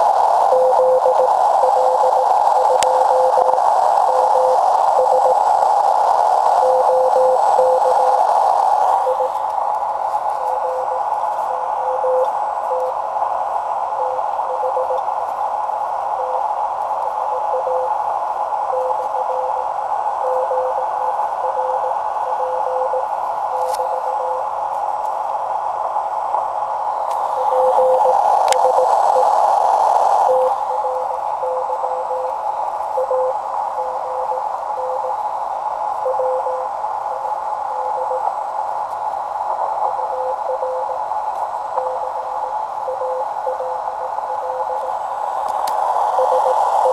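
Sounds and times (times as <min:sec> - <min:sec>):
morse code tone: 0:00.0 - 0:05.6, 0:06.4 - 0:09.5, 0:10.2 - 0:13.0, 0:13.9 - 0:15.1, 0:16.1 - 0:18.0, 0:18.6 - 0:24.5, 0:27.2 - 0:35.2, 0:36.0 - 0:38.3, 0:39.6 - 0:41.0, 0:41.7 - 0:45.0, 0:45.9 - 0:46.9
radio band noise hiss: 0:00.0 - 0:46.9.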